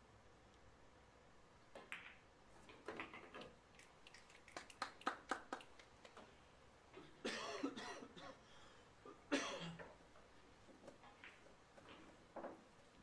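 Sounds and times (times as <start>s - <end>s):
pool balls clicking: 1.7s - 3.6s.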